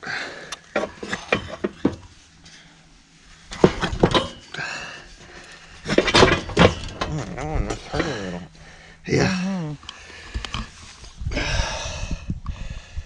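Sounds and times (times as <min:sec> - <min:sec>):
steel cattle chute rattling: 0:05.3 - 0:07.1.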